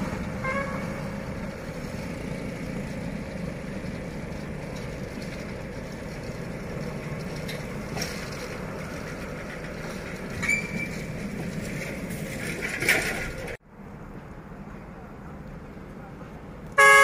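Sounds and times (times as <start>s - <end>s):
motor scooter engine: 0.0s - 12.8s
low hum of engines: 0.0s - 17.0s.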